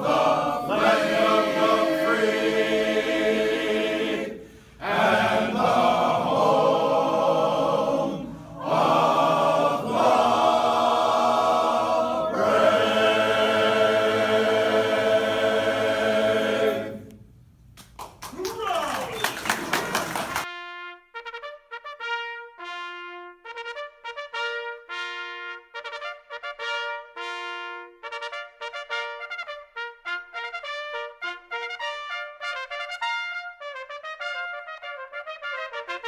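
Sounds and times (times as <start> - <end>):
men's a cappella chorus singing: 0.0 - 17.1.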